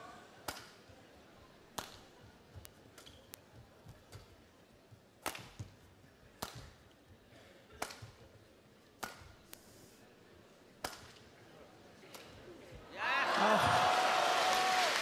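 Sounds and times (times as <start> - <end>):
rackets hitting shuttlecock: 5.2 - 5.8, 6.4 - 6.8, 9.0 - 9.4, 10.8 - 11.2.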